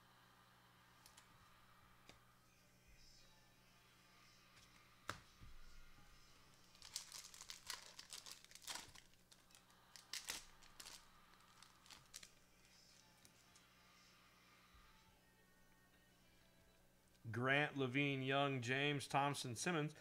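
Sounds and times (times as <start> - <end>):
plastic packaging crinkling: 6.5 - 12.4.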